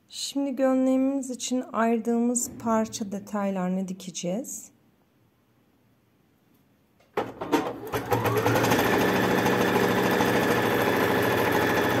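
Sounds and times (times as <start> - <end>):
electric sewing machine stitching: 7.2 - 12.0.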